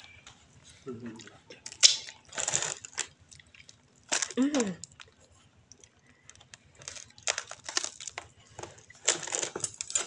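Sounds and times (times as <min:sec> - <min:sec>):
fruit husk cracking and tearing: 0:05.8 - 0:08.4.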